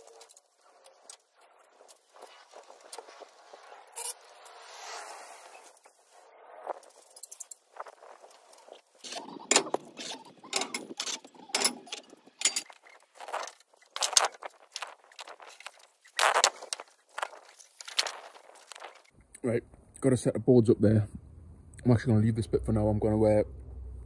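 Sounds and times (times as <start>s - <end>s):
scaffold tubes clanking: 9.0s - 14.4s.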